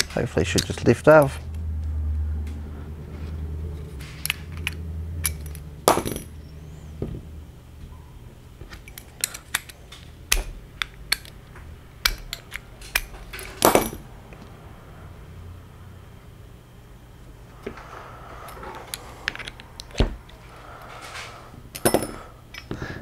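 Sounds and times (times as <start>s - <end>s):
metal parts clattering: 0.0s - 1.4s, 3.8s - 6.4s, 8.7s - 11.4s, 12.0s - 14.1s, 20.8s - 22.8s
small metal parts clicking: 0.0s - 1.6s, 3.8s - 6.4s, 8.7s - 11.4s, 12.0s - 14.4s, 18.4s - 22.8s.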